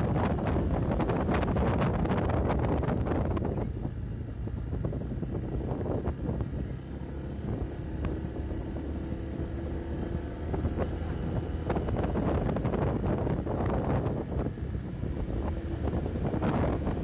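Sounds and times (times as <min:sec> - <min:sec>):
motorcycle engine running: 0:00.0 - 0:17.0
wind buffeting microphone: 0:00.0 - 0:17.0.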